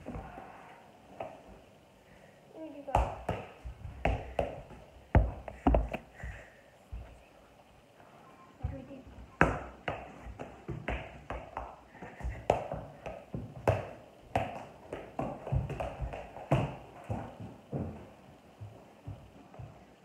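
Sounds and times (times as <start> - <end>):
ball kicked with sharp taps: 2.9 - 6.0, 9.4 - 16.8.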